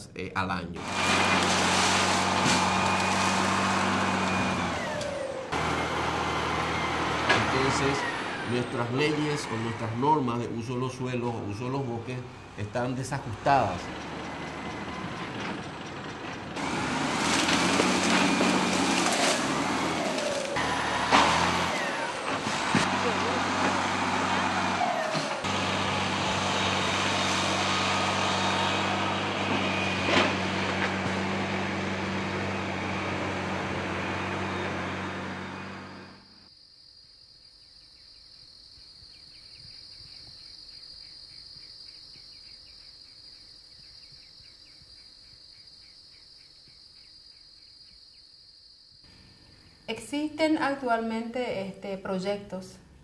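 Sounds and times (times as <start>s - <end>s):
insects whining: 0.0s - 50.2s
heavy engine running: 0.8s - 36.5s
insects chirping rapidly: 35.8s - 50.1s.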